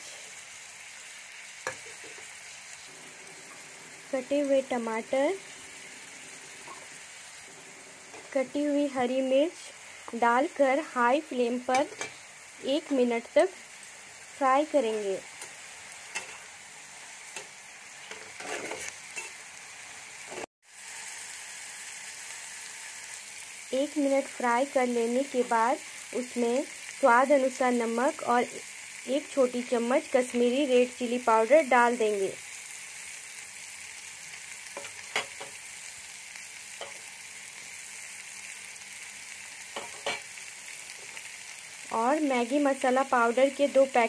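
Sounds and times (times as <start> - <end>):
vegetables sizzling in hot oil: 0.0 - 44.0
spatula scraping a pan: 15.4 - 16.6, 17.4 - 19.4.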